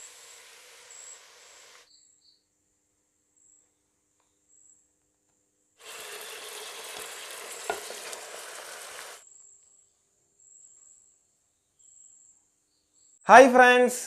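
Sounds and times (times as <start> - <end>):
noodles sizzling in a pot: 0.0 - 1.9, 5.8 - 9.2.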